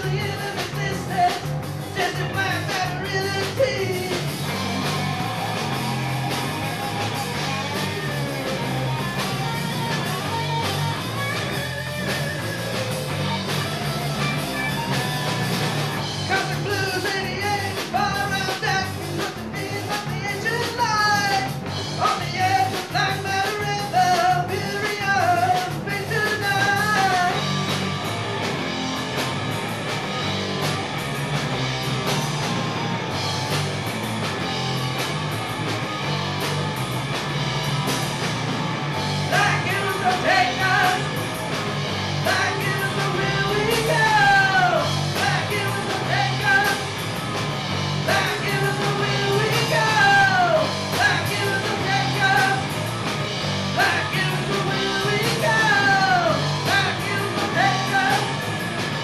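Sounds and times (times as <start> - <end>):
rock band playing: 0.0 - 59.0
person singing: 16.3 - 27.4, 39.3 - 41.1, 42.2 - 46.9, 48.1 - 52.7, 53.8 - 58.4.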